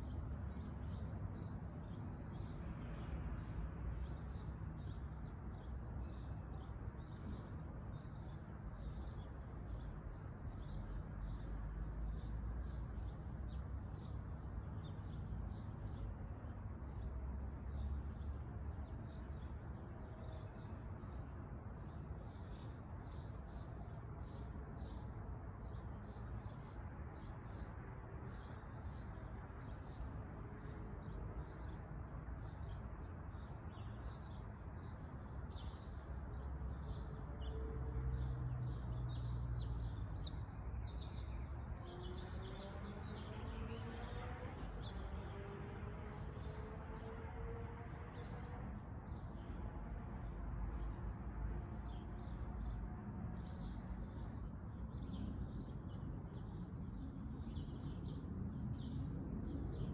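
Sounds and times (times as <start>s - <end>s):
small birds chirping: 38.2s - 43.9s.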